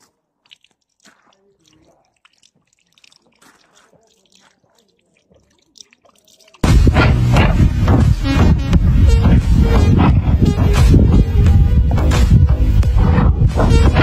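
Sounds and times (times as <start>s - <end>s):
animal drinking: 0.0s - 8.0s
water dripping from a tap: 0.4s - 6.6s.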